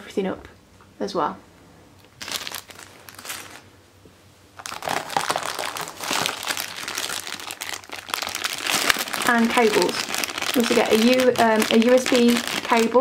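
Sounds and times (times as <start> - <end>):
plastic bag crinkling: 2.1 - 3.7, 4.6 - 13.0.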